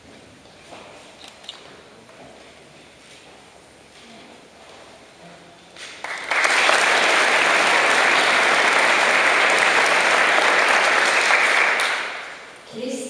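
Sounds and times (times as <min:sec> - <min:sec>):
audience applauding: 0:05.8 - 0:12.6.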